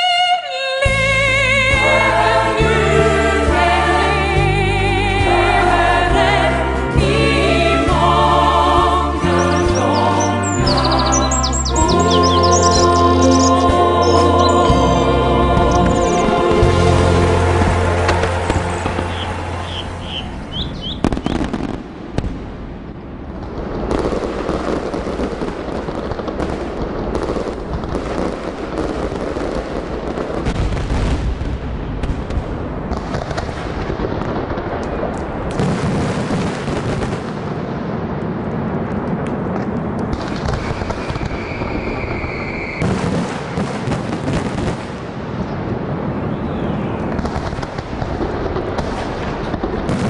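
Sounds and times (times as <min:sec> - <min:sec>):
fireworks banging and crackling: 0:08.9 - 0:50.0
firework whistle: 0:09.1 - 0:21.7, 0:40.2 - 0:43.6.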